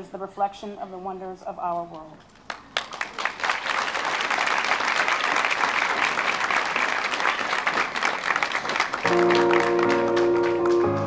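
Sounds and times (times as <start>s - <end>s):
audience applauding and cheering: 2.5s - 11.0s
music with held chords: 9.1s - 11.0s.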